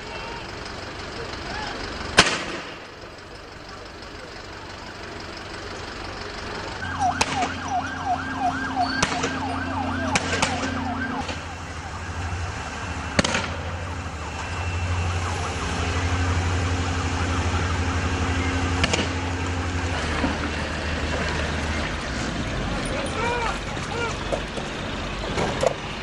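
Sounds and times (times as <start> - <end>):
engine hum: 0.0 - 26.0
sharp bangs: 2.2 - 2.9, 6.8 - 11.8, 12.6 - 14.7, 16.9 - 19.5
police siren yelping: 6.8 - 19.6.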